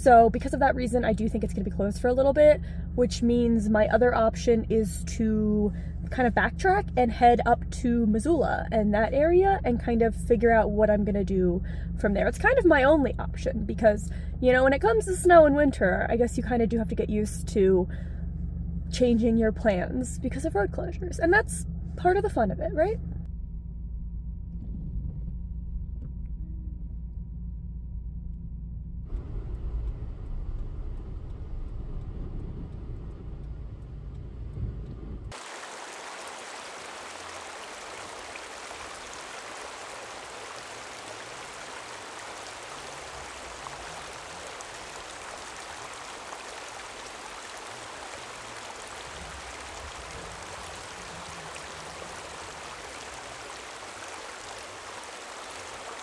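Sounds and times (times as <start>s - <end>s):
car road and engine rumble: 0.0s - 56.0s
flowing water hissing: 35.3s - 56.0s.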